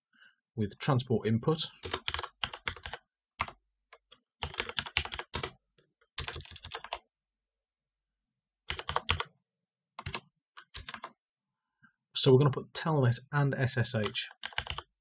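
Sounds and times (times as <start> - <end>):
typing on computer keyboard: 1.8 - 5.6, 6.2 - 7.0, 8.7 - 9.3, 10.0 - 11.2, 14.0 - 14.9.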